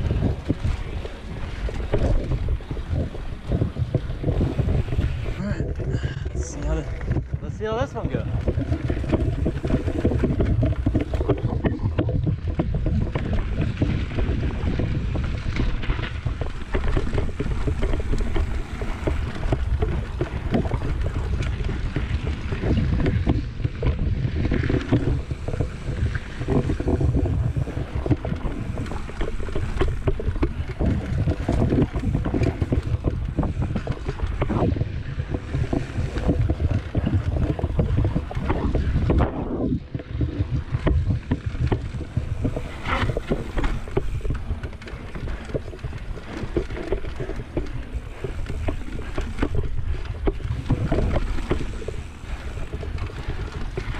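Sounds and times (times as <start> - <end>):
bike rattling and knocking: 0.0 - 53.9
bike tyre noise on dirt: 0.0 - 53.9
wind buffeting microphone: 0.0 - 53.9.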